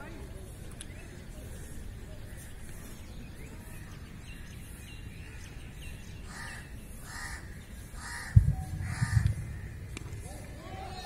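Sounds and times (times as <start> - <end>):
crow cawing: 6.3 - 9.9
steady low rumble: 8.2 - 10.6
loud low thump: 8.4 - 10.2.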